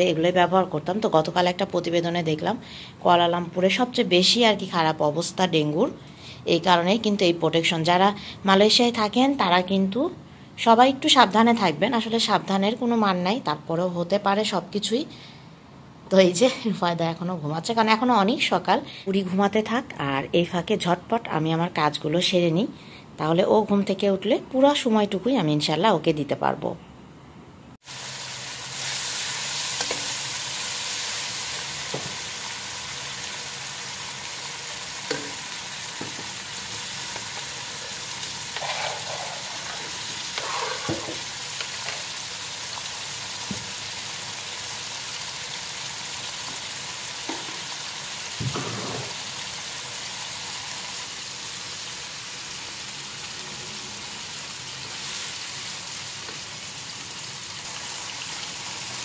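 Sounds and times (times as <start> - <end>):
food sizzling in hot oil: 27.8 - 59.0.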